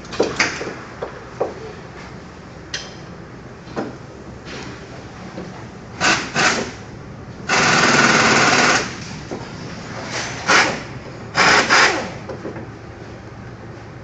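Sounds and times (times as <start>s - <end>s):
air impact wrench rattling: 6.0s - 6.8s, 7.5s - 9.1s, 10.4s - 12.2s.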